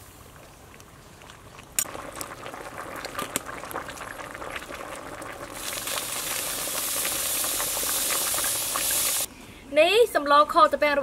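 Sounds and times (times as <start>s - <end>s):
food bubbling in a pot: 0.0s - 9.3s
steady hiss: 5.4s - 9.3s.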